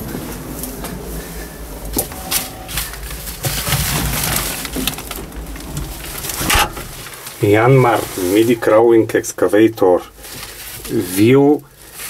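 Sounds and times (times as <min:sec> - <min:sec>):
steady low rumble: 0:00.0 - 0:12.0
sharp clicks and knocks: 0:03.0 - 0:07.1.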